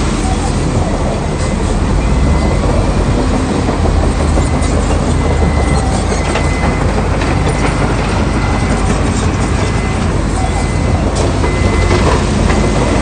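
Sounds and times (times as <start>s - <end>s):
bulldozer diesel engine running: 0.0s - 13.0s
steel tracks rattling: 0.0s - 13.0s.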